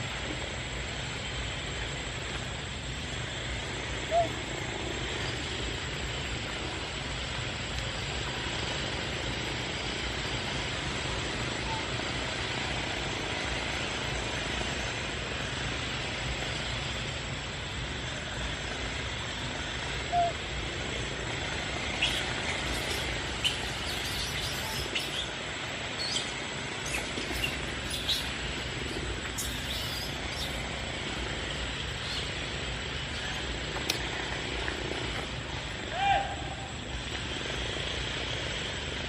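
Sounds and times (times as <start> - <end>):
small birds chirping: 21.8 - 34.1.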